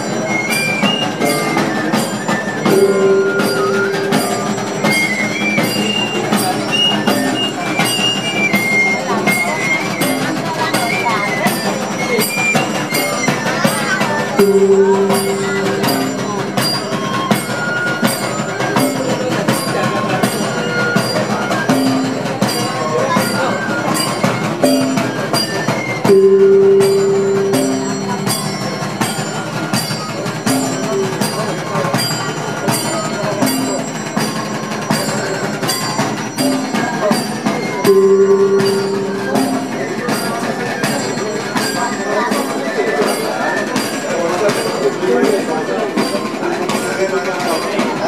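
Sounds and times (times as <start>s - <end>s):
marching band drumbeat: 0.0s - 41.5s
crowd chatter: 0.0s - 48.0s
shrill wind instrument melody: 0.0s - 48.0s
gong strokes: 1.1s - 8.1s, 14.4s - 19.7s, 26.1s - 32.2s, 36.3s - 41.9s.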